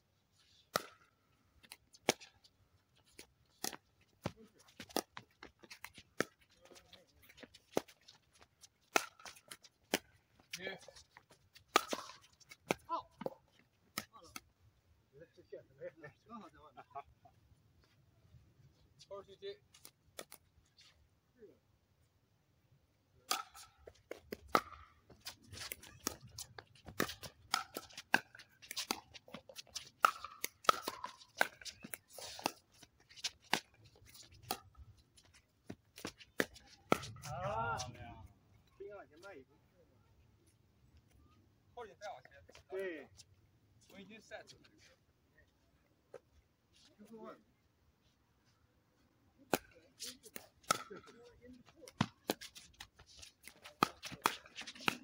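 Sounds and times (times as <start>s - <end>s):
paddles hitting plastic ball: 11.7s - 14.5s, 23.3s - 34.7s, 49.5s - 51.1s, 51.7s - 55.0s
ball bouncing on court: 26.8s - 32.5s.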